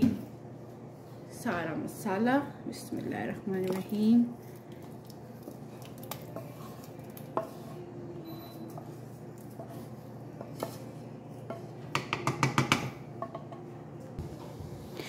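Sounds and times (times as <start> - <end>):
spatula scraping a pan: 6.2 - 11.6.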